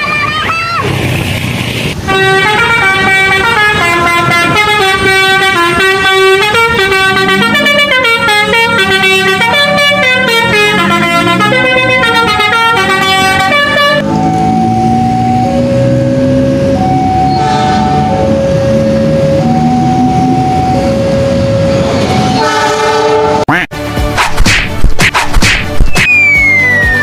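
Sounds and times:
musical horn tune: 2.0s - 14.7s, 22.2s - 23.7s.

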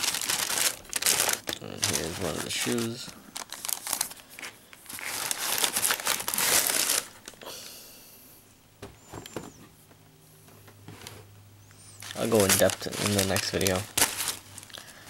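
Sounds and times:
tissue paper rustling: 0.0s - 7.3s, 12.0s - 15.0s.

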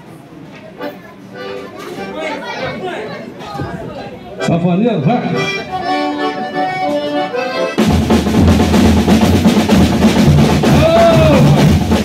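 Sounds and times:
accordion phrase: 0.8s - 3.3s, 4.3s - 12.0s
bass drum beats: 7.8s - 12.0s
snare drum rolls: 7.8s - 12.0s.

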